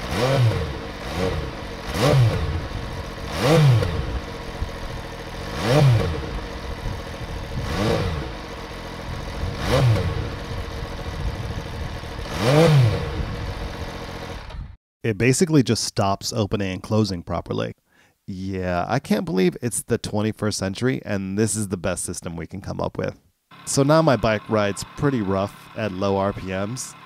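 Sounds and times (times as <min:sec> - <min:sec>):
motorcycle engine revving: 0:00.0 - 0:14.8, 0:23.5 - 0:27.0.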